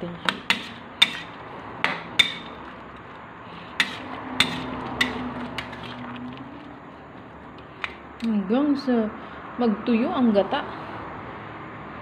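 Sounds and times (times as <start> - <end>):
metal utensil clinking on steel pan: 1.9 - 2.6, 3.8 - 5.9.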